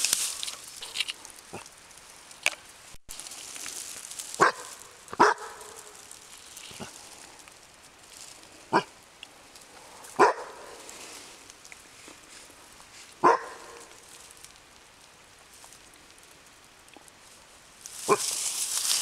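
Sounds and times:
rustling hiss: 0.0s - 19.0s
dog barking: 4.4s - 5.9s, 10.2s - 10.7s, 13.2s - 13.9s.

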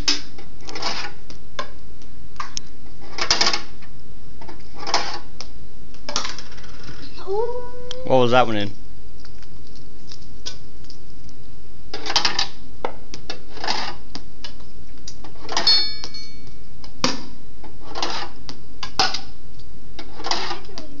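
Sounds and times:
metal bearings clattering: 15.4s - 16.4s
bright metallic ring: 15.6s - 16.5s.

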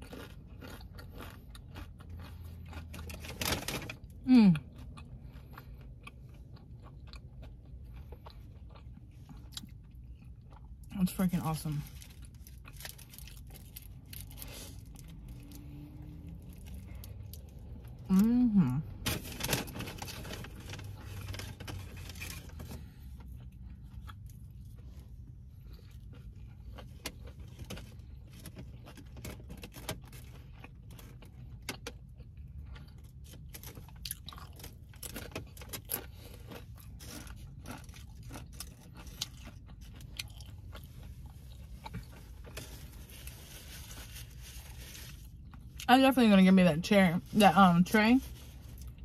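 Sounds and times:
food containers crinkling: 0.0s - 4.2s, 11.8s - 18.0s, 19.0s - 25.0s, 25.7s - 45.9s
person chewing food: 0.0s - 10.9s, 11.9s - 18.2s, 20.0s - 45.9s, 48.5s - 49.0s.

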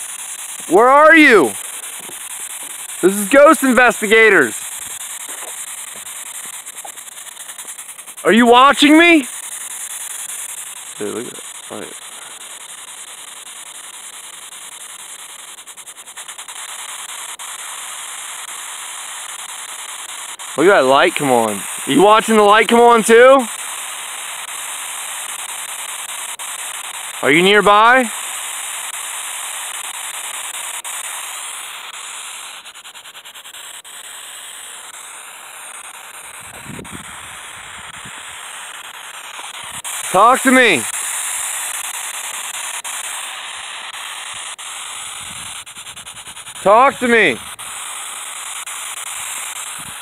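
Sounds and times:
quick run of clicks: 0.0s - 8.3s
radio static hiss: 0.0s - 50.0s.

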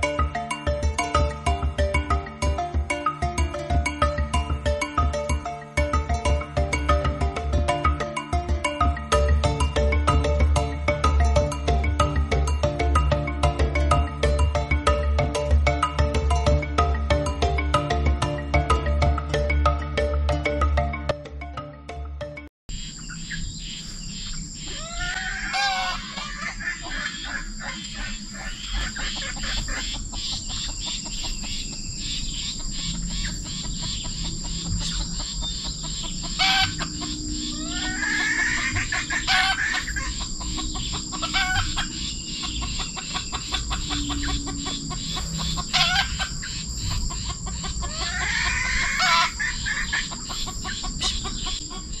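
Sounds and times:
rooster crowing: 24.6s - 30.0s, 36.3s - 46.6s, 47.4s - 51.9s
steady high-pitched tone: 25.9s - 52.0s.

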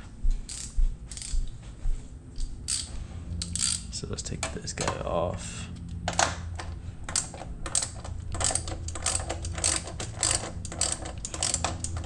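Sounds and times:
ratchet wrench clicking: 0.5s - 1.4s, 2.6s - 4.0s, 7.1s - 12.0s.

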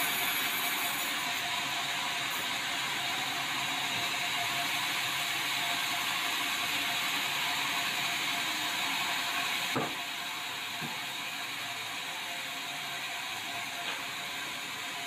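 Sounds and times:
band saw cutting timber: 0.0s - 10.1s.

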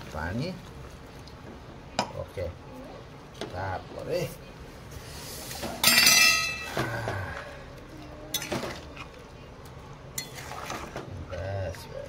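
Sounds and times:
metal ladle clanging on pan: 5.8s - 6.7s.

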